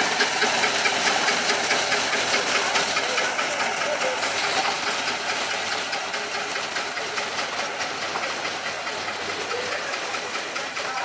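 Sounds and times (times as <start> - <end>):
locomotive engine running: 0.0 - 11.0
train wheels rumbling on rails: 0.0 - 11.0.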